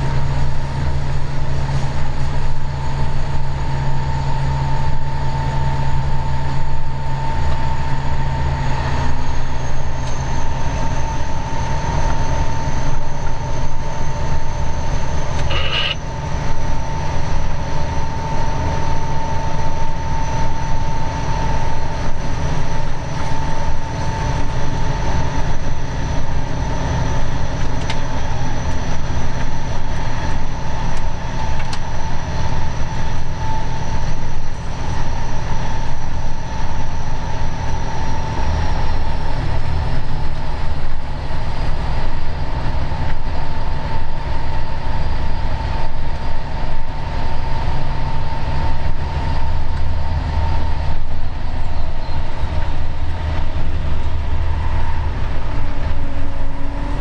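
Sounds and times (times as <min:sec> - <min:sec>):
constant whine: 0:00.0 - 0:57.0
locomotive engine drone: 0:00.0 - 0:57.0
rail rumble: 0:00.0 - 0:57.0
faint high whine: 0:00.4 - 0:42.2.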